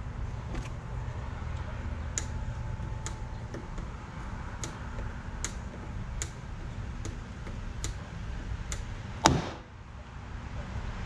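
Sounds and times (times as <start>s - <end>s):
steady low rumble: 0.0s - 11.0s
dent puller clicking: 2.2s - 9.4s.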